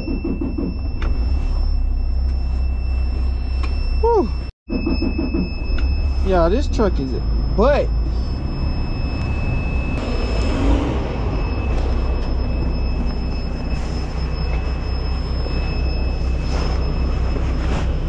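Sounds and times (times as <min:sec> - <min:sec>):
truck diesel engine rumble: 0:05.7 - 0:18.0.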